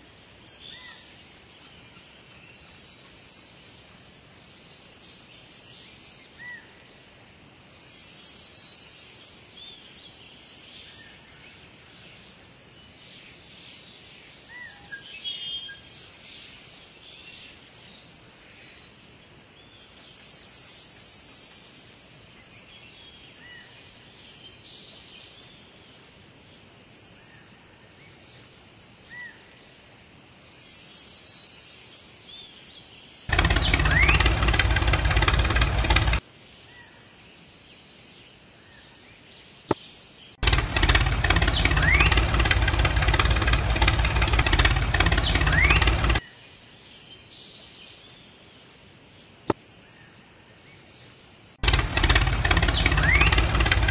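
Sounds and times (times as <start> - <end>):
small motor running: 33.3 - 36.2, 40.4 - 46.2, 51.6 - 53.9.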